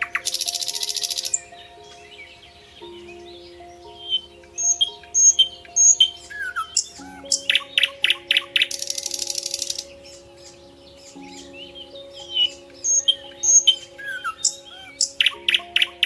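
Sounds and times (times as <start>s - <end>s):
soft background music: 0.0s - 16.0s
songbirds chirping: 0.0s - 16.0s.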